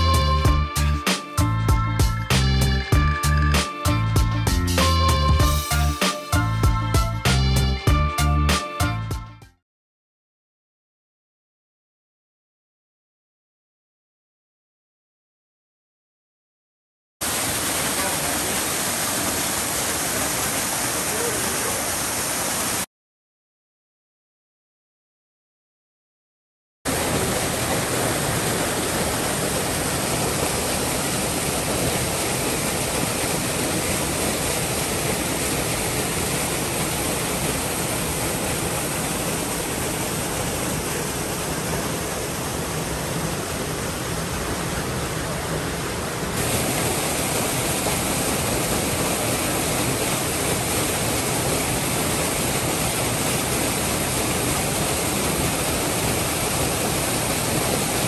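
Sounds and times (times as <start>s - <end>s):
waterfall rushing: 17.2s - 22.9s, 26.9s - 58.0s.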